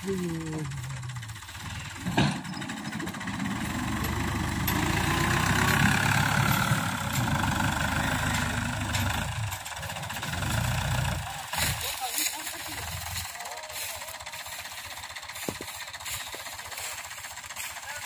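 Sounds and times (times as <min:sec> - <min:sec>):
tractor diesel engine: 0:00.0 - 0:18.0.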